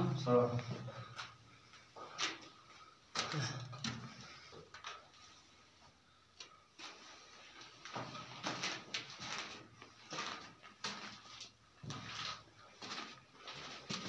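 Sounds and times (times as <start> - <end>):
footsteps scuffing on gritty floor: 7.7 - 14.0.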